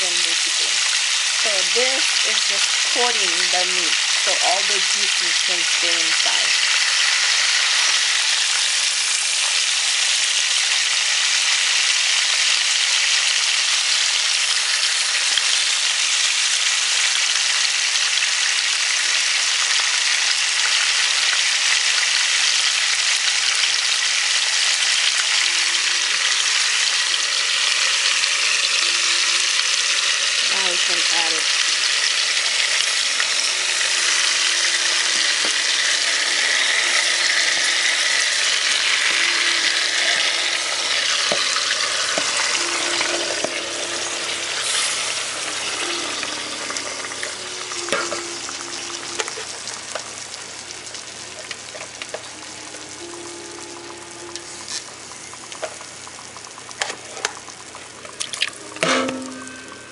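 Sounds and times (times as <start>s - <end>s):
fish sizzling in hot oil: 0.0s - 59.9s.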